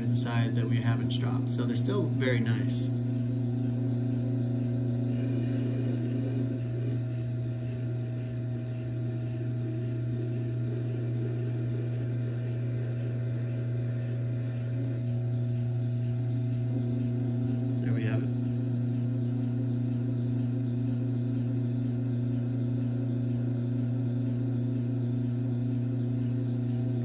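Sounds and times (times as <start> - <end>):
sharpener motor humming: 0.0 - 27.0.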